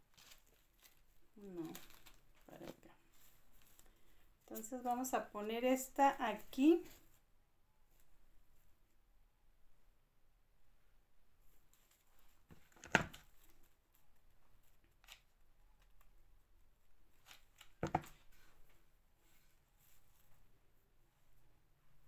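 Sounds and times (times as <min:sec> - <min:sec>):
faint rustling: 0:00.0 - 0:05.3.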